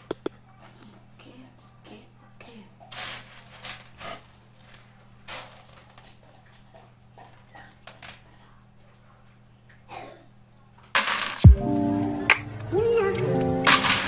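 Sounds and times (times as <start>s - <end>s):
dried beans rattling on metal tray: 2.9s - 6.5s, 10.9s - 11.5s, 13.7s - 14.0s.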